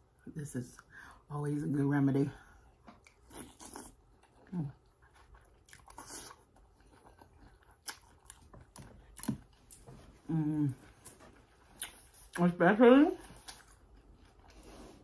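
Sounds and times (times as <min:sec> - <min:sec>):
person chewing: 0:02.5 - 0:12.4, 0:13.2 - 0:15.0.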